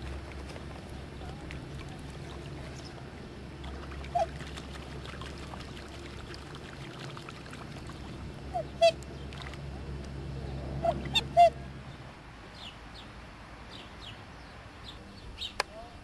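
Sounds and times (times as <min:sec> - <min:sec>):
steady low hum: 0:00.0 - 0:16.0
swans piping calls: 0:03.7 - 0:04.7, 0:07.7 - 0:09.1, 0:10.7 - 0:11.7.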